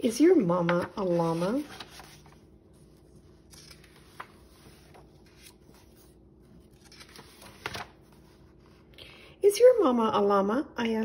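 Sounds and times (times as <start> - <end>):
book pages rustling: 0.5 - 8.9.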